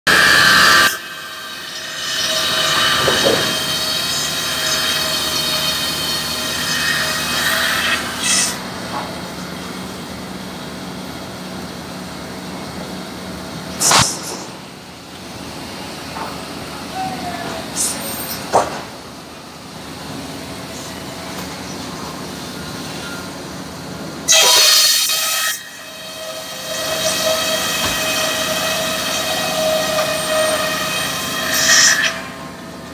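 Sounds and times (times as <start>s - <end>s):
circular saw ripping timber: 0.1s - 8.7s, 24.3s - 32.6s.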